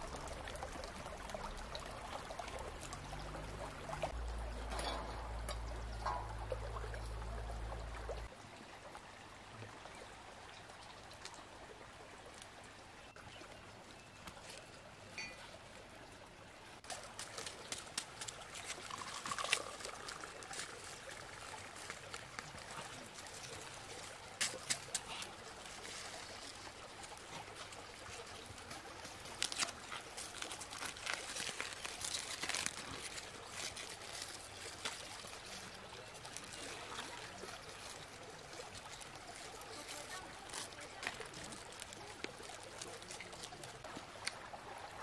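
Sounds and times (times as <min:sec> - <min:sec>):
aluminium foil crinkling: 0:28.7 - 0:43.8.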